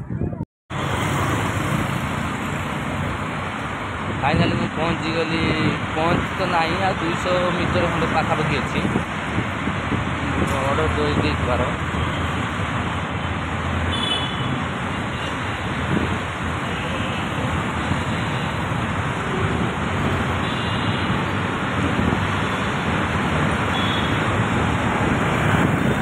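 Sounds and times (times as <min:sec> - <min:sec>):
wind buffeting microphone: 0:00.0 - 0:00.4, 0:07.6 - 0:11.4, 0:15.7 - 0:16.6, 0:21.0 - 0:26.0
road traffic noise: 0:00.0 - 0:26.0.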